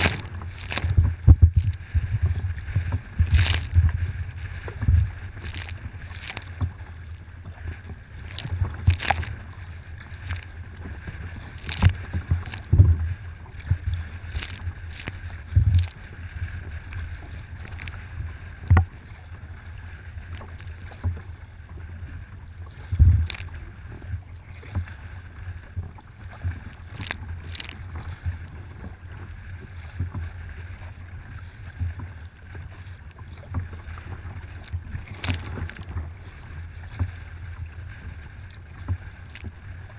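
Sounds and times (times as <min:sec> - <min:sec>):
waves splashing against kayak hull: 0:00.0 - 0:39.9
wind rumble on microphone: 0:00.0 - 0:39.9
heavy thumps on hull: 0:00.1 - 0:03.2.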